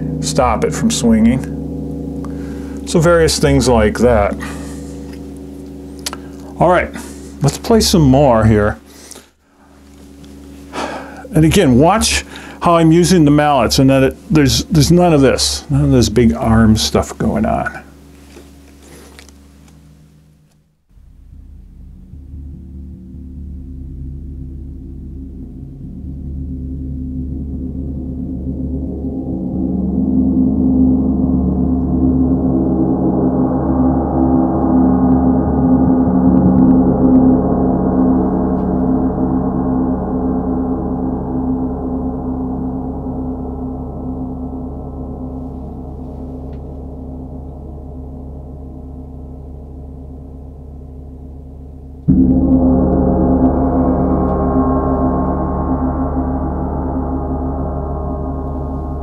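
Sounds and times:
gongs played with soft mallets: 0.0 - 9.0, 20.9 - 59.0.

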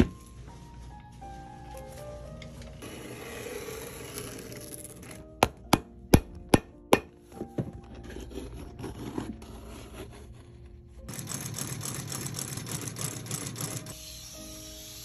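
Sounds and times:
sole stitching machine running: 11.1 - 14.0.

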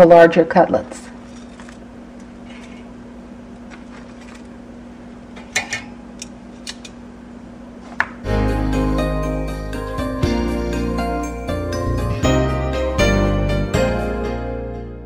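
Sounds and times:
jingly background music: 8.3 - 14.2.

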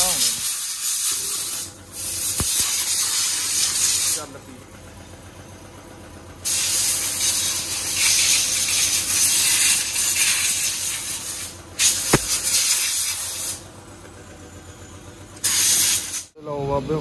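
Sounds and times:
compressed air hissing from blow gun: 0.0 - 4.3, 6.5 - 13.6, 15.4 - 16.4
sharp knock: 12.1 - 12.5.

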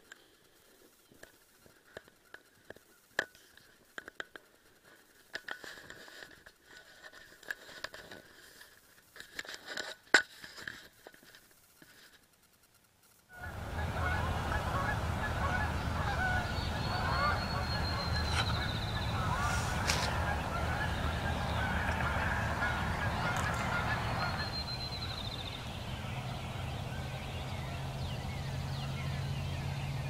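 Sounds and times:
gear handling clicks and rustles: 0.0 - 13.2
birds chirping: 13.4 - 30.0
low wind rumble: 13.4 - 30.0.

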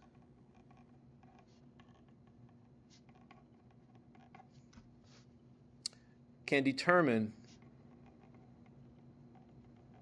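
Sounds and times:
pen scratching on paper: 0.0 - 5.3
low steady hum: 0.0 - 10.0.

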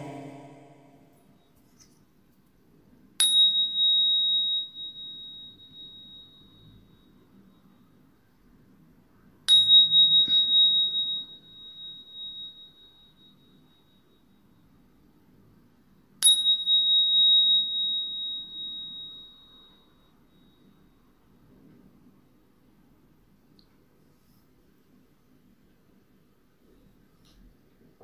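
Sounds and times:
small bell ringing: 3.2 - 8.1, 9.5 - 14.9, 16.2 - 21.4.

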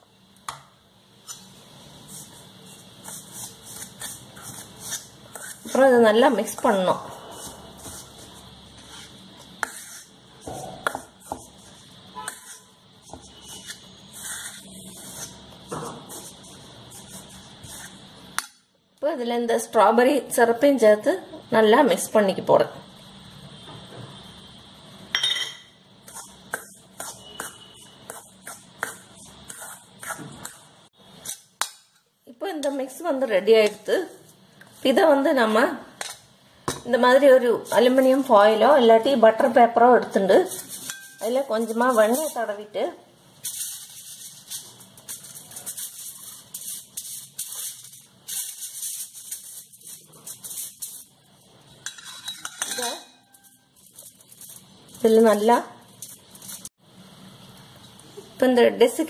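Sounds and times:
spoon scraping metal bowl: 2.1 - 15.4, 51.8 - 53.6
ringing spoon clink: 25.2 - 25.7, 40.8 - 41.2
aluminium foil rustling: 40.3 - 42.6, 43.3 - 51.6, 52.8 - 56.8.

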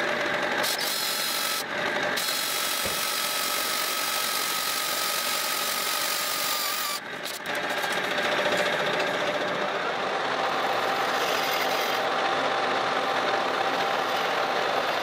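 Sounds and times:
drill drilling into metal: 0.6 - 7.4.

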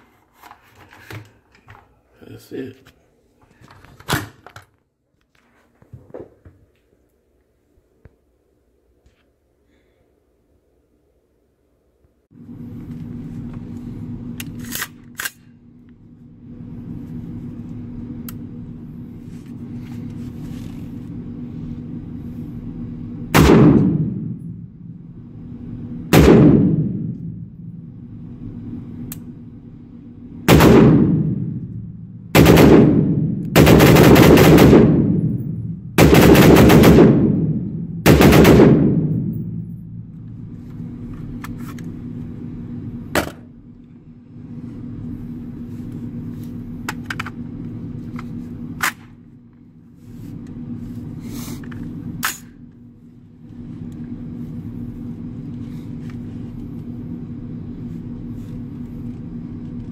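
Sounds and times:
pistol gunshots with echo: 23.3 - 24.5, 26.1 - 27.1, 30.5 - 31.7, 32.3 - 39.8.

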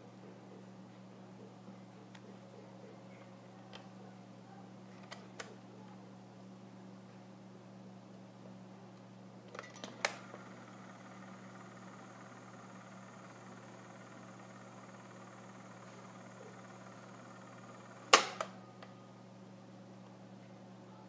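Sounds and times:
low steady hum: 0.0 - 21.0
record player tone arm clicks: 13.2 - 18.5.

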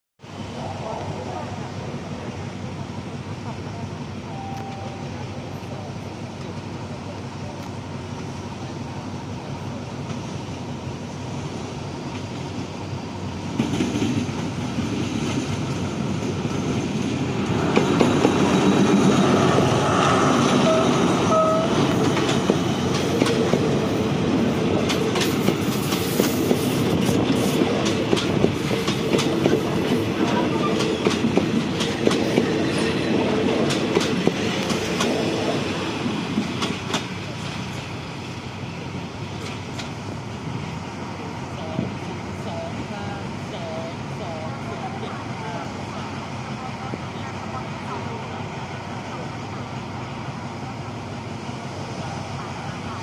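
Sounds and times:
diesel locomotive engine: 0.2 - 53.0
train wheels clacking over rail joints: 21.8 - 23.8, 24.8 - 35.5, 36.3 - 37.2.

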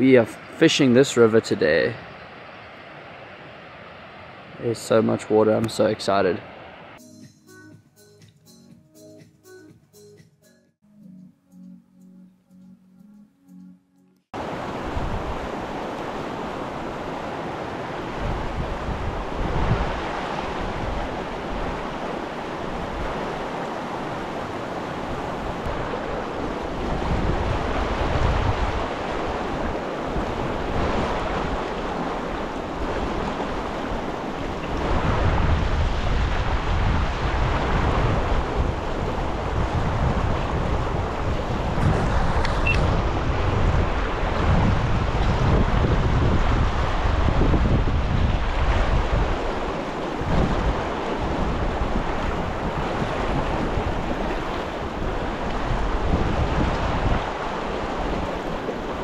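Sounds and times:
river rushing: 14.4 - 59.0
wind buffeting microphone: 14.4 - 59.0.

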